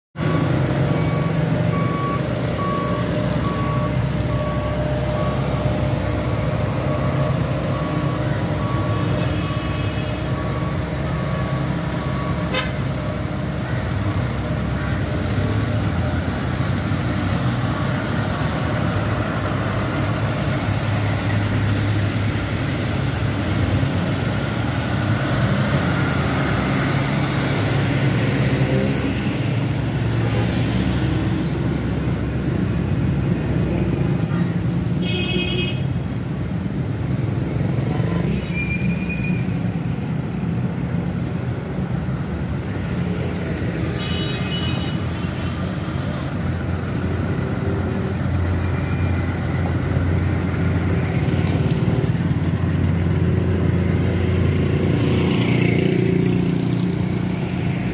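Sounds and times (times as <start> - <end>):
road roller diesel engines: 0.2 - 57.9
repeated single-pitch beep: 0.3 - 5.6.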